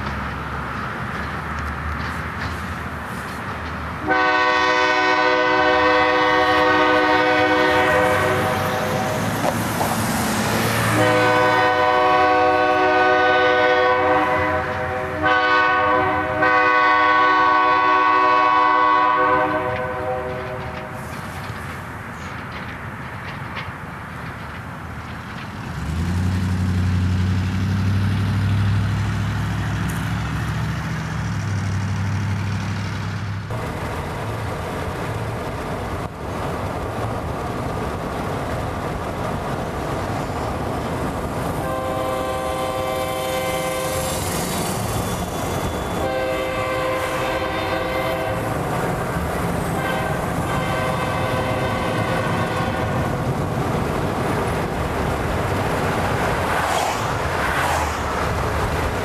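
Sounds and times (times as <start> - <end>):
moving train rumble: 0.0 - 59.0
train horn blasts: 4.0 - 9.3, 10.8 - 21.0, 41.6 - 48.6, 49.6 - 53.1.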